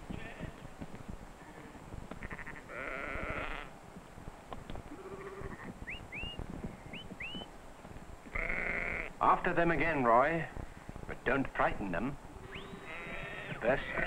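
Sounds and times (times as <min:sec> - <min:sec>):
sheep bleating: 0:00.1 - 0:00.6, 0:01.4 - 0:03.7, 0:04.9 - 0:05.7, 0:08.3 - 0:09.2, 0:12.4 - 0:14.0.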